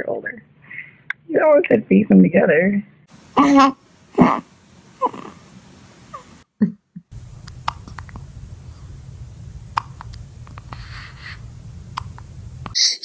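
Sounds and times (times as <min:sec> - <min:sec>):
low room hum: 0:00.0 - 0:13.0
baby hiccuping: 0:03.4 - 0:05.4
faint clicks: 0:07.4 - 0:08.3, 0:09.7 - 0:10.8, 0:11.9 - 0:12.8.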